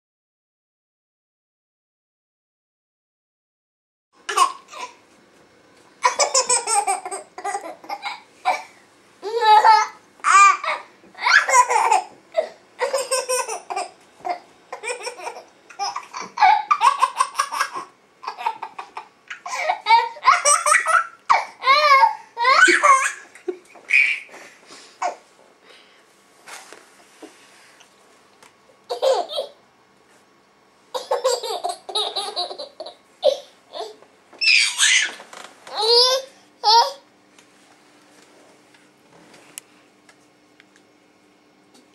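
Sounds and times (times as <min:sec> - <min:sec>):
baby laughing: 0:04.3 - 0:05.0, 0:06.0 - 0:24.3, 0:28.9 - 0:29.6, 0:30.9 - 0:37.0.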